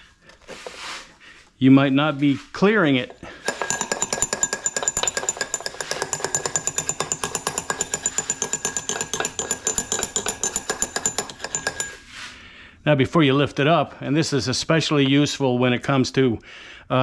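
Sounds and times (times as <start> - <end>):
metal tool rattling clinks: 3.4 - 12.0.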